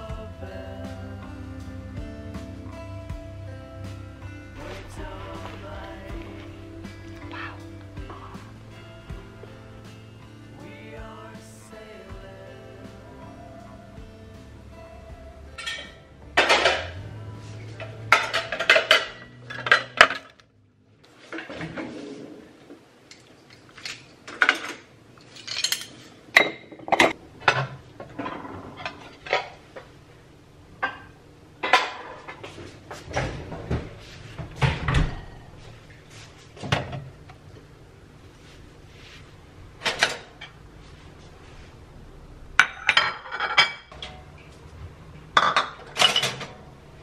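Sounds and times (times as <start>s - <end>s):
plates and cutlery clinking: 15.6s - 20.4s, 30.8s - 33.8s, 42.6s - 44.2s, 45.4s - 46.6s.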